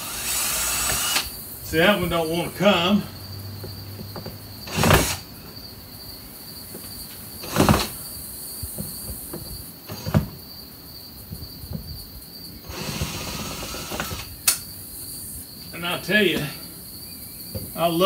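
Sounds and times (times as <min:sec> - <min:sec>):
cordless drill whirring: 0:00.0 - 0:01.3, 0:04.7 - 0:05.3, 0:12.6 - 0:14.3
insects chirring: 0:00.0 - 0:18.0.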